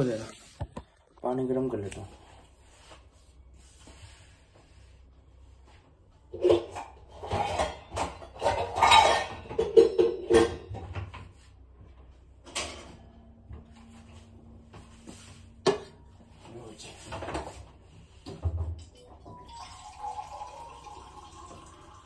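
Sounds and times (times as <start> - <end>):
pots and utensils clattering: 6.3 - 11.3, 12.5 - 13.1.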